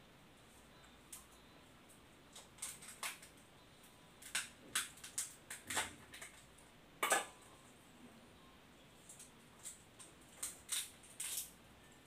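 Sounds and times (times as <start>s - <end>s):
prawn shell cracking: 2.3s - 3.4s, 9.2s - 11.6s.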